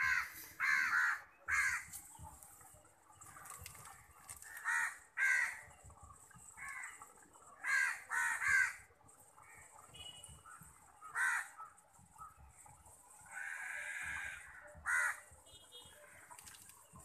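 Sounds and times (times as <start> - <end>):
crows cawing: 0.0 - 2.0, 4.3 - 5.7, 6.5 - 9.9, 10.6 - 12.3, 13.2 - 16.4.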